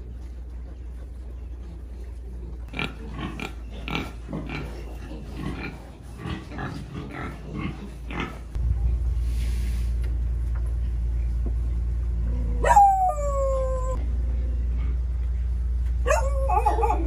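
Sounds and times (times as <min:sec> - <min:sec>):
steady low rumble: 0:08.4 - 0:17.0.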